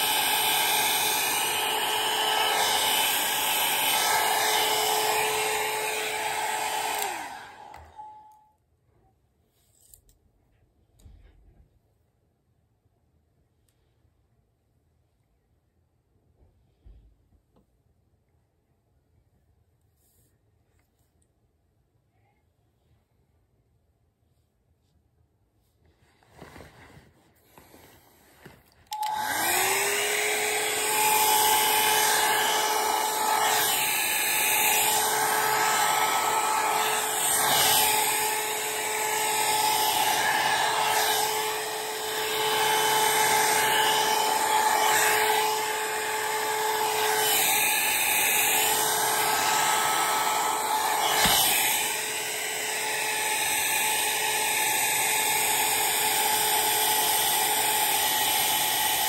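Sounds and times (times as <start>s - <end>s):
hair dryer whining: 0.0s - 8.4s, 27.5s - 59.0s.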